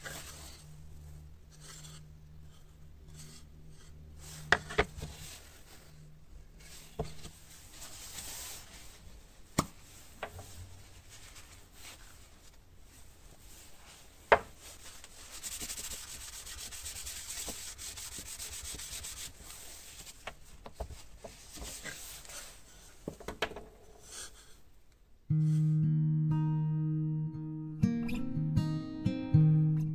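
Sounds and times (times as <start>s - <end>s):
cloth rubbing on wooden board: 10.5s - 20.2s.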